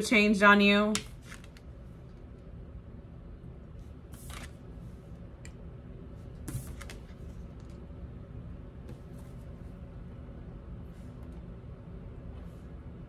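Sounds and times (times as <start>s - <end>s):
low steady hum: 0.0s - 13.0s
cards rustling and tapping: 1.0s - 1.7s.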